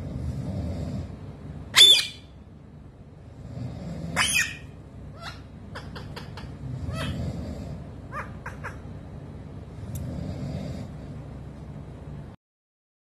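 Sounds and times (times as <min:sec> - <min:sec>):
parakeet squawking: 0:01.7 - 0:02.4, 0:04.2 - 0:07.2, 0:08.1 - 0:08.9.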